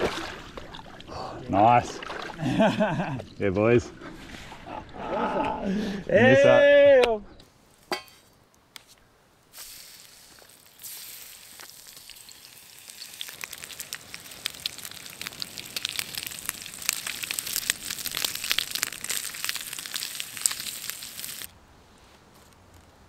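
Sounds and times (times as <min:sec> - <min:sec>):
bacon sizzling in a frying pan: 0:09.6 - 0:21.5.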